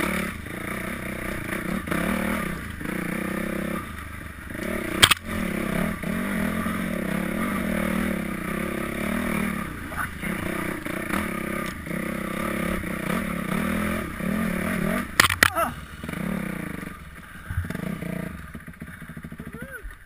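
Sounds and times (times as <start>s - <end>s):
dirt bike engine revving: 0.0s - 20.0s
sharp clacks: 5.0s - 5.3s, 15.1s - 15.6s
bike clattering: 5.0s - 5.4s, 15.1s - 16.2s.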